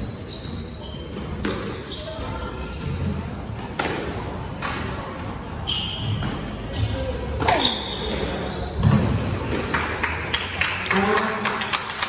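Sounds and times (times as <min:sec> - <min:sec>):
squash ball hitting racquets and walls: 0:01.0 - 0:01.7, 0:03.5 - 0:05.1, 0:05.8 - 0:10.1
shoes squeaking on wooden floor: 0:07.5 - 0:09.0.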